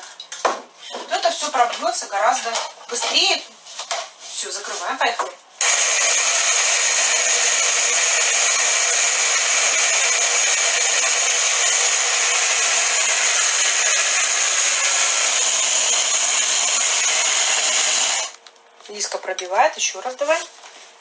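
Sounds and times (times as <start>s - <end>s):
electric hand blender running: 5.6s - 18.4s.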